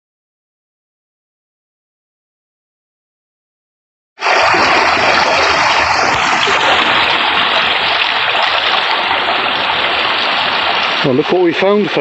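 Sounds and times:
water rushing at water wheel: 0:04.2 - 0:12.0.

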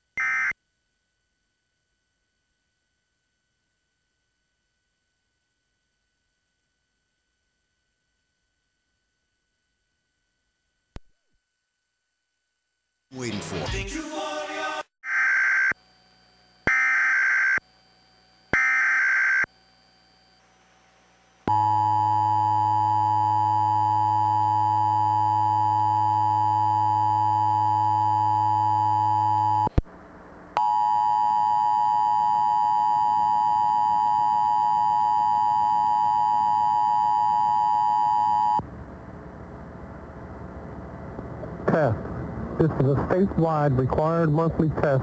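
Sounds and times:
screeching digital data bursts: 0:18.5 - 0:19.5.

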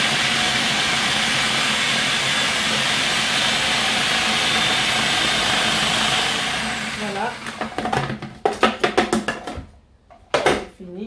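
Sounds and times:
food processor chopping: 0:00.0 - 0:08.3.

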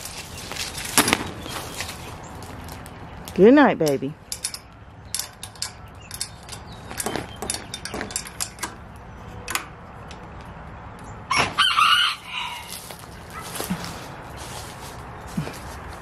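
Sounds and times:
metal latch and hinges rattling: 0:03.8 - 0:10.4
chicken call: 0:11.3 - 0:12.8.

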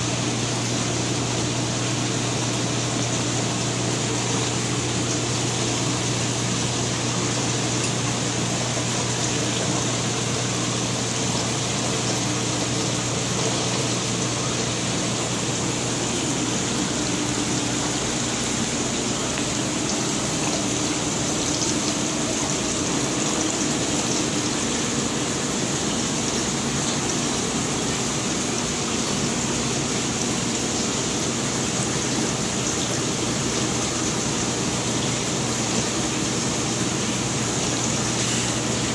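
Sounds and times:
steady low hum: 0:00.0 - 0:38.9
water circulating through tanks: 0:00.0 - 0:38.9.

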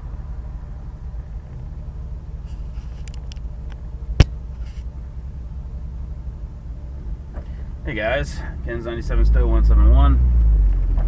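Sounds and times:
vehicle driving on gravel road: 0:00.0 - 0:11.0
light rattles: 0:02.4 - 0:05.0.

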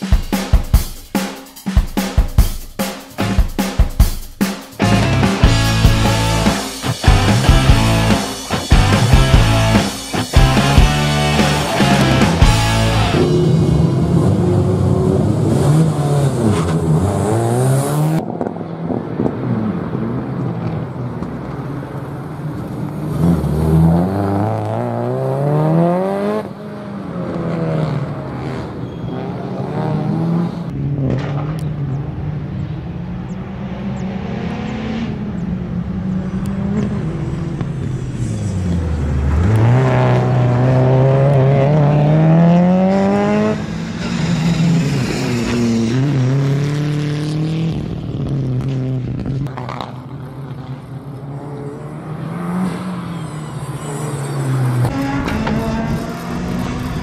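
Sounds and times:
car engine revving hard: 0:23.1 - 0:26.5, 0:38.6 - 0:49.1, 0:53.7 - 0:57.0.

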